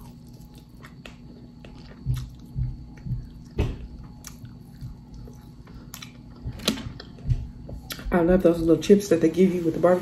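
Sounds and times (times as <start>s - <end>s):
person chewing ribs: 0.0s - 8.0s.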